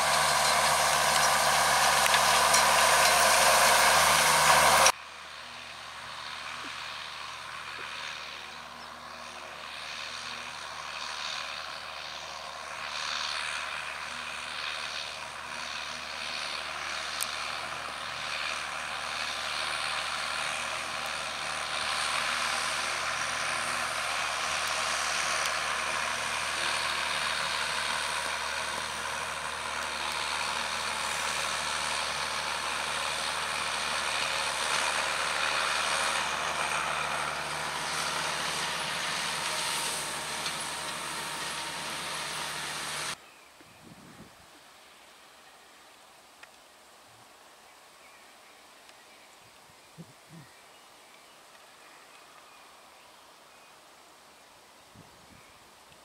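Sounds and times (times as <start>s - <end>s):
tedder tines rustling hay: 0.0s - 4.9s
tractor diesel engine running: 0.0s - 43.2s.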